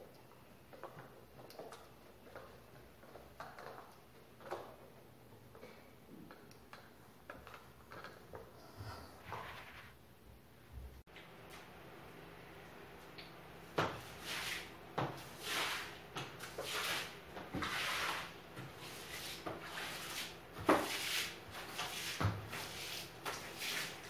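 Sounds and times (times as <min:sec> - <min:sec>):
mop swishing on hard floor: 0:09.2 - 0:10.0, 0:13.7 - 0:24.0.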